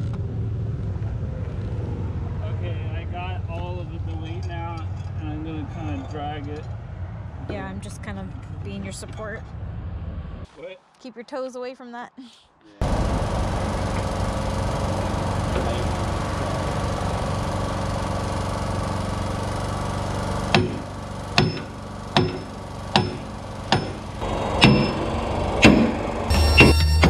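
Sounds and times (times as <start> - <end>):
steady droning noise: 0.0 - 10.4, 12.8 - 27.0
sledgehammer striking steel pin: 20.5 - 25.0, 25.6 - 26.0.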